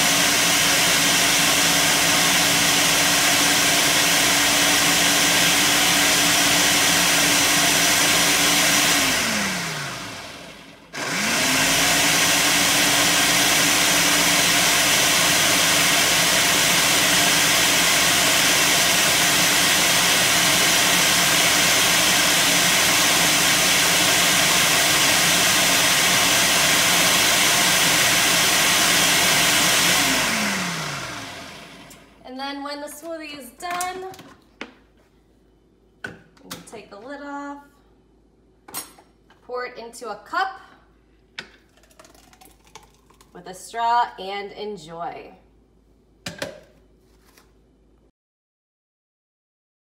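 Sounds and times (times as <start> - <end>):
blender motor running: 0.0 - 32.1.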